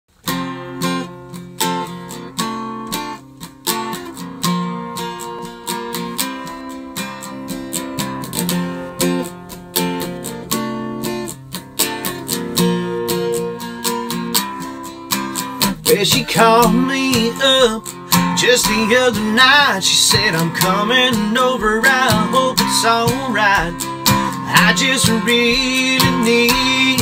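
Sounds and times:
acoustic guitar strumming chords: 0.2 - 27.0.

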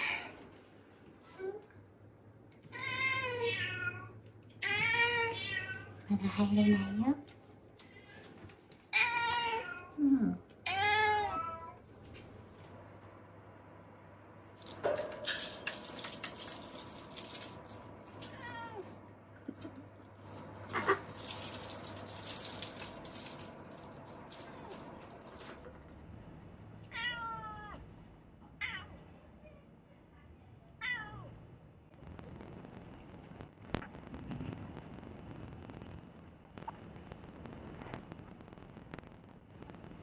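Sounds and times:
toy wand rattling: 14.6 - 18.4, 19.5 - 26.0.

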